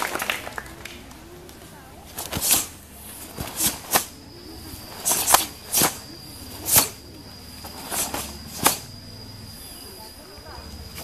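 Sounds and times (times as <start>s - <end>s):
uniform snapping with punches: 8.0s - 8.9s.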